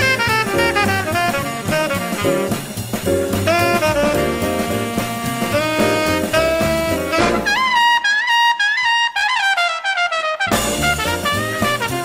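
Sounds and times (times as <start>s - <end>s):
brass horn solo with pitch bends: 0.0s - 12.0s
jazz band music: 0.0s - 12.0s.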